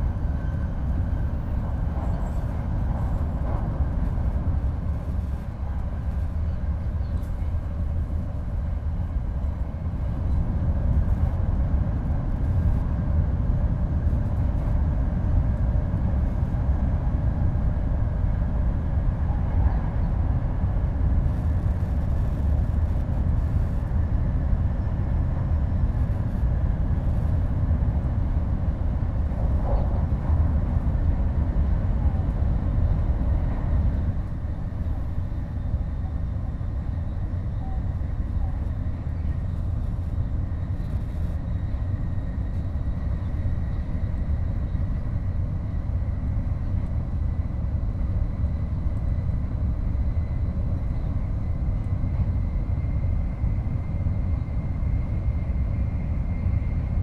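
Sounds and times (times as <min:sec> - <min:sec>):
train low rumble: 0:00.0 - 0:57.0.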